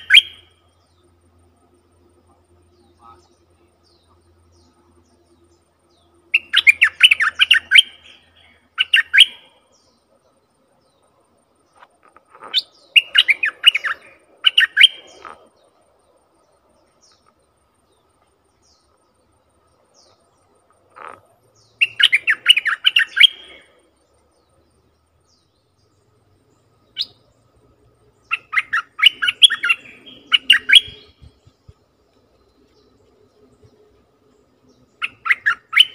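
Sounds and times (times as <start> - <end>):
bulbul warbling song: 0.0 - 1.1, 6.3 - 9.9, 12.5 - 15.5, 21.0 - 23.8, 28.2 - 35.9.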